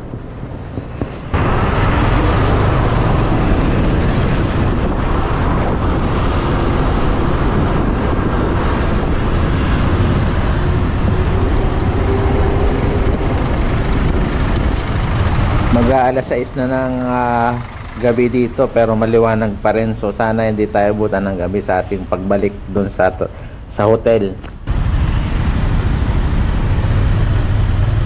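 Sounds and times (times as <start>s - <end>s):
passing cars and buses: 0.0s - 28.0s
road noise: 0.0s - 28.0s
motorbike engine: 0.9s - 18.7s.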